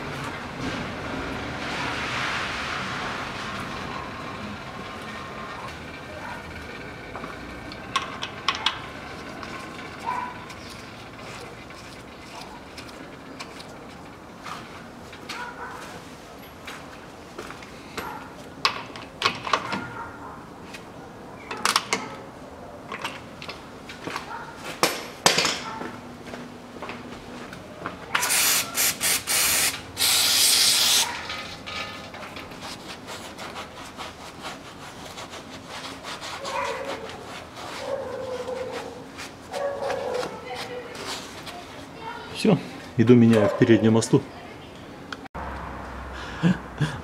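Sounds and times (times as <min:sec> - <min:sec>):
clicks and knocks of hand tools: 0:07.7 - 0:14.1
pressurized spray hissing: 0:28.2 - 0:31.1.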